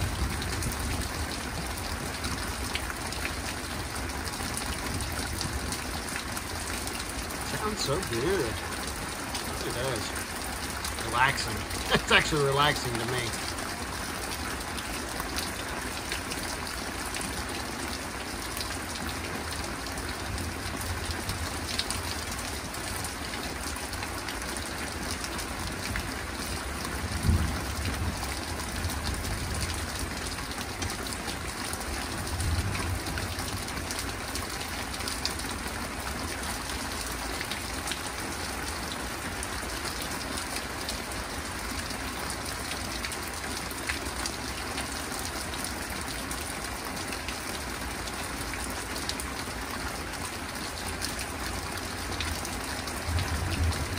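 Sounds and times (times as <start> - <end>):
steady rain: 0.0 - 53.9
thunder rumbling: 53.0 - 53.9.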